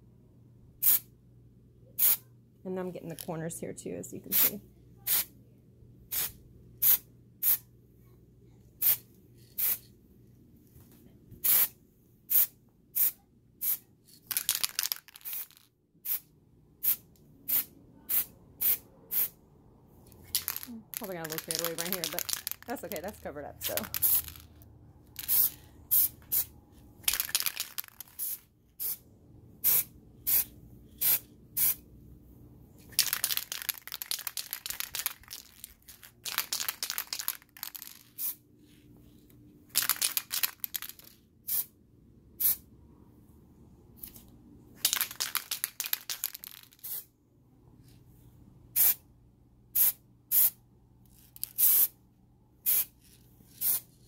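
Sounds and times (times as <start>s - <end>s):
spray paint can hissing: 0.8s - 1.0s, 2.0s - 2.2s, 6.1s - 7.6s, 9.6s - 9.8s, 14.8s - 16.2s, 23.7s - 24.4s, 25.2s - 26.5s, 27.1s - 29.0s, 29.6s - 31.8s, 38.1s - 38.4s, 46.8s - 47.0s, 51.5s - 51.9s, 52.6s - 52.9s, 53.6s - 53.8s.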